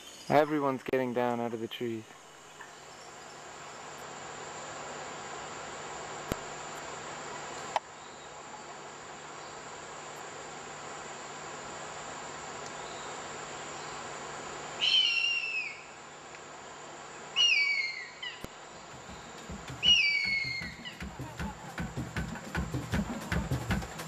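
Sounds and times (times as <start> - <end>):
rainforest insects humming: 0.0 - 24.0
eagle screaming: 14.8 - 15.9, 17.4 - 18.3, 19.8 - 20.9
drum-led music: 18.9 - 24.0.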